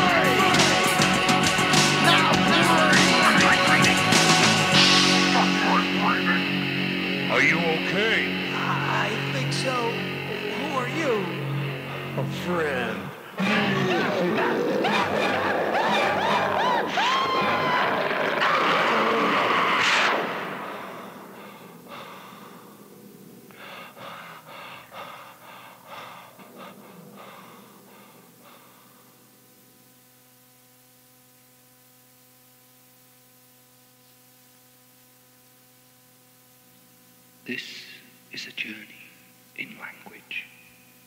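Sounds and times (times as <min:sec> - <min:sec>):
industrial rock band music: 0:00.0 - 0:16.9
tape hiss and low hum: 0:00.0 - 0:41.0.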